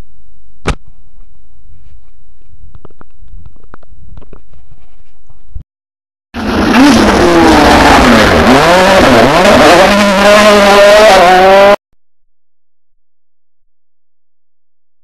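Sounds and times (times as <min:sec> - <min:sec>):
rally car engine revving: 0:06.4 - 0:11.8.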